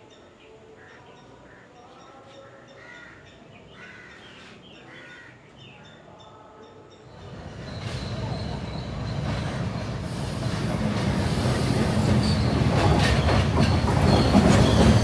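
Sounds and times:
crows cawing: 0:02.8 - 0:05.4.

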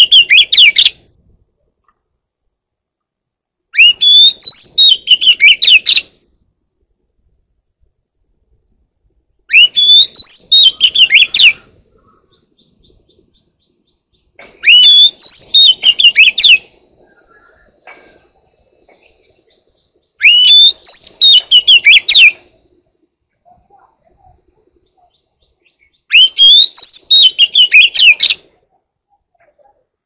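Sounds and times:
bird singing whistled phrases: 0:00.0 - 0:01.0, 0:03.7 - 0:06.1, 0:09.5 - 0:11.7, 0:14.6 - 0:17.8, 0:20.2 - 0:22.4, 0:25.0 - 0:28.4.

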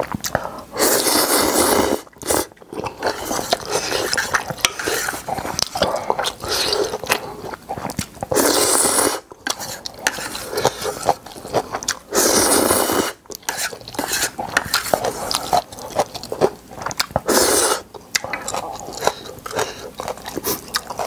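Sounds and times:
slurping noodles: 0:00.8 - 0:16.3, 0:17.2 - 0:17.9
chewing: 0:02.0 - 0:08.7, 0:09.3 - 0:21.0.

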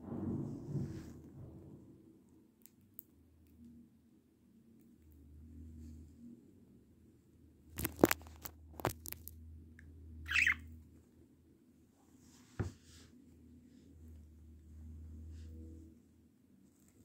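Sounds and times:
low thump: 0:00.0 - 0:02.1
budgerigar chirp: 0:10.3 - 0:10.6.

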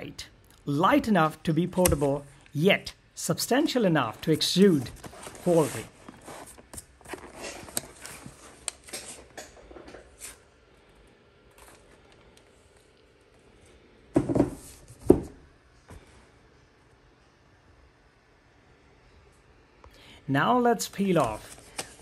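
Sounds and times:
cardboard and paper rustling: 0:04.7 - 0:09.3, 0:21.1 - 0:22.0.

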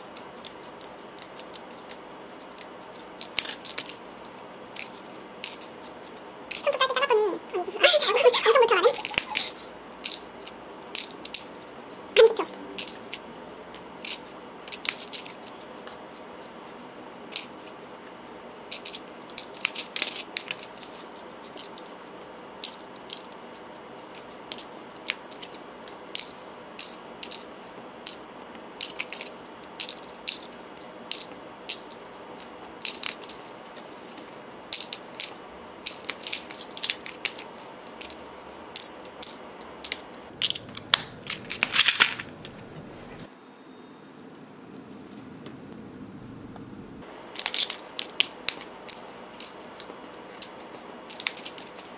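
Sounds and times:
small charms clicking on stone: 0:00.0 - 0:05.8, 0:08.8 - 0:11.6, 0:12.2 - 0:16.0, 0:18.7 - 0:21.9, 0:24.1 - 0:42.6, 0:47.4 - 0:51.9
charms dropping into plastic compartments: 0:02.9 - 0:05.7, 0:07.8 - 0:11.6, 0:12.2 - 0:13.2, 0:14.0 - 0:15.9, 0:17.3 - 0:17.6, 0:18.7 - 0:21.9, 0:22.6 - 0:23.3, 0:24.1 - 0:28.2, 0:28.8 - 0:33.5, 0:34.2 - 0:38.2, 0:38.8 - 0:42.6, 0:47.4 - 0:49.7, 0:50.3 - 0:51.9.

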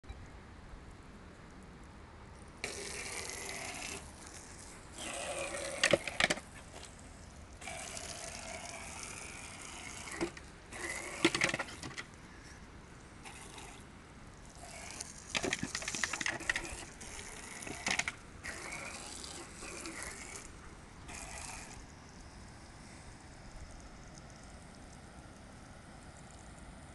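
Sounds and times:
hose water jet spraying: 0:02.6 - 0:07.0, 0:07.6 - 0:12.0, 0:13.2 - 0:21.9.

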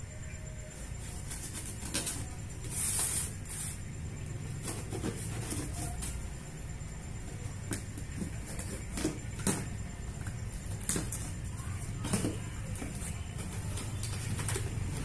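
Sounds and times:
tape tearing with a hiss: 0:01.6 - 0:03.8.

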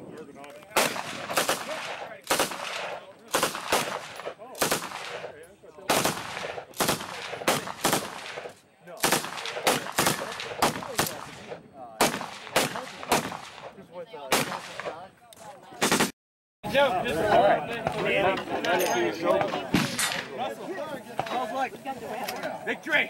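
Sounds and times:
rifle shots with echo: 0:00.7 - 0:15.0, 0:15.8 - 0:16.1.

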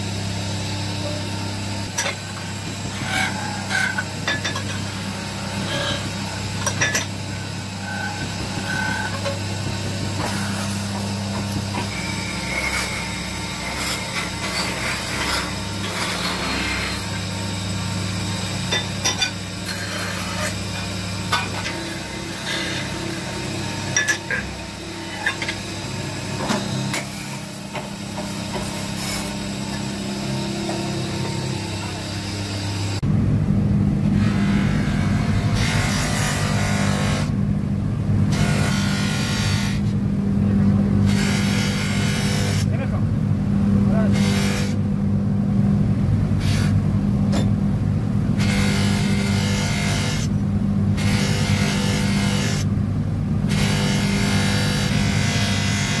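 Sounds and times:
lathe humming: 0:00.0 - 0:37.4
tool scraping spinning metal: 0:02.0 - 0:09.4, 0:10.2 - 0:17.2, 0:18.7 - 0:25.7, 0:26.4 - 0:33.0.

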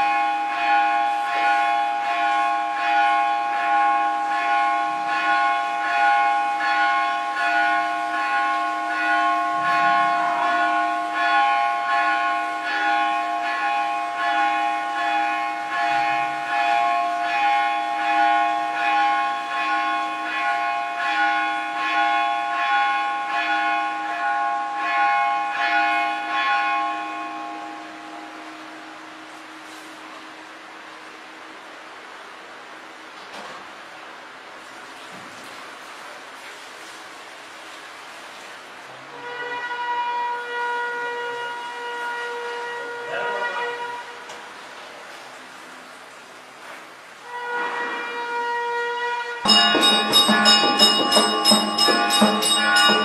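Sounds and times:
temple bell ringing rapidly: 0:00.0 - 0:28.8, 0:49.4 - 0:53.0.

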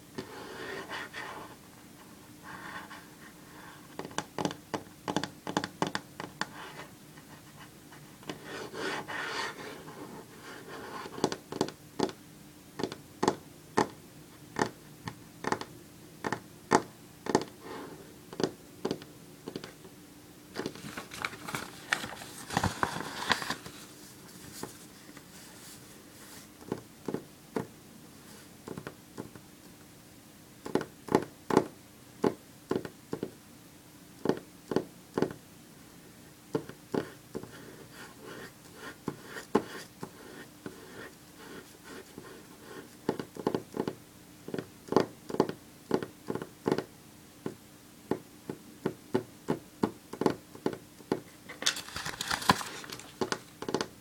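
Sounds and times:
fingernails tapping on wood: 0:04.0 - 0:06.5, 0:11.2 - 0:12.2, 0:15.4 - 0:17.6, 0:43.1 - 0:51.2
nails tapping on paper: 0:04.0 - 0:06.6, 0:11.1 - 0:12.2, 0:12.8 - 0:14.0, 0:14.6 - 0:17.6, 0:18.3 - 0:19.8, 0:43.0 - 0:54.0.

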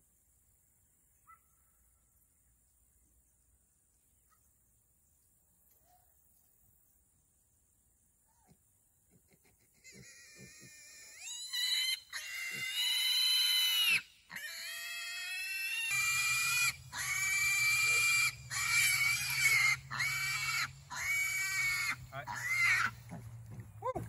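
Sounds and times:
piglet squealing: 0:09.8 - 0:23.0.

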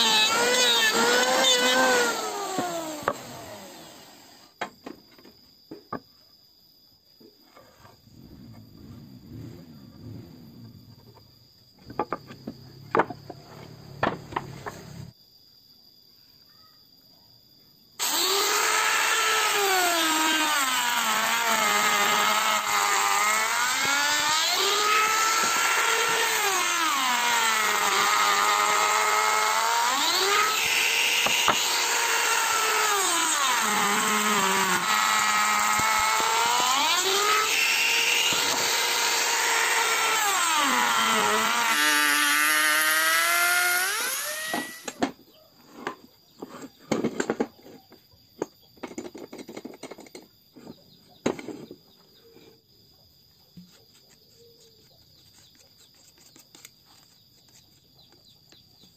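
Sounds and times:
wood router cutting: 0:00.0 - 0:04.5, 0:18.0 - 0:45.0.

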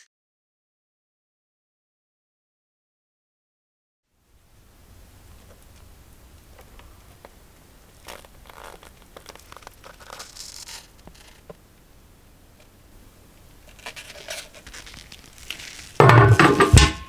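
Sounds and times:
low steady hum: 0:04.1 - 0:17.0
small ticks: 0:05.4 - 0:11.6
resin pouring: 0:08.0 - 0:11.2, 0:13.6 - 0:16.1
plastic cups crinkling and scraping: 0:08.0 - 0:11.6, 0:13.6 - 0:17.0.

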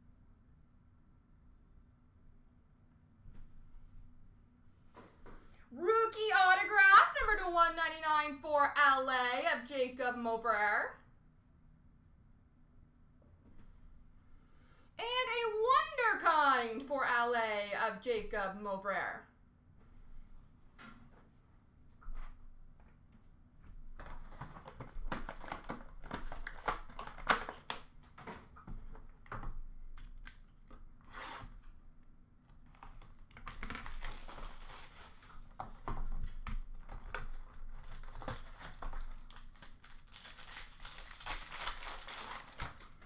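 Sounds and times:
wrappers torn and crinkled: 0:24.2 - 0:27.9, 0:32.6 - 0:35.6, 0:36.2 - 0:43.0.

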